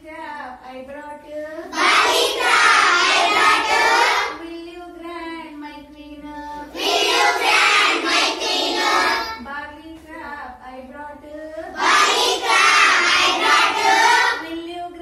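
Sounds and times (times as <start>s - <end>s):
children singing in chorus: 1.7s - 4.4s, 6.4s - 9.4s, 11.7s - 14.4s.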